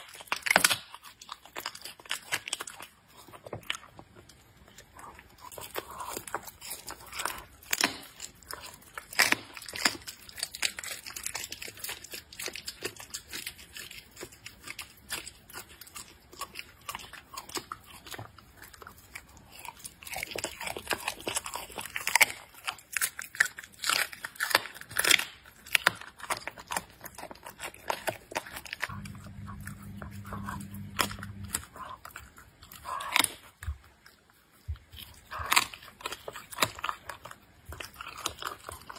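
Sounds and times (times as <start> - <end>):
animal chewing and licking: 0.0 - 38.9
biting crunches: 0.0 - 38.9
low steady hum: 28.9 - 33.0.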